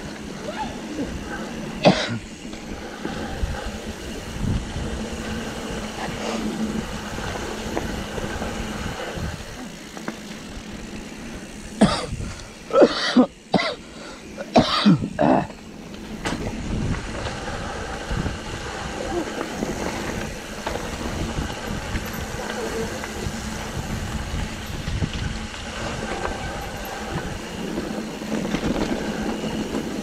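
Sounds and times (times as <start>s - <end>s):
wind and bike trail noise: 0.0s - 30.0s
person coughing or grunting: 1.8s - 2.2s, 11.8s - 13.8s, 14.5s - 15.5s.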